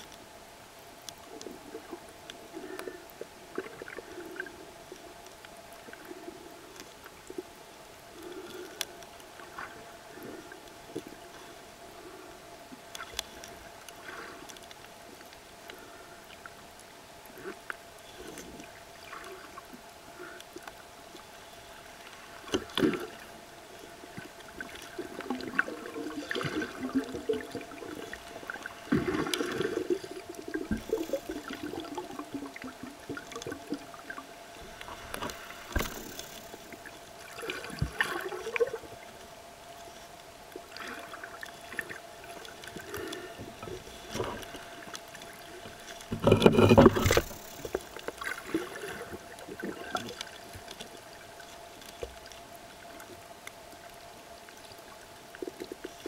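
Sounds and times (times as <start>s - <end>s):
faint steady hum: 0.0s - 56.0s
water sloshing and gurgling: 1.0s - 56.0s.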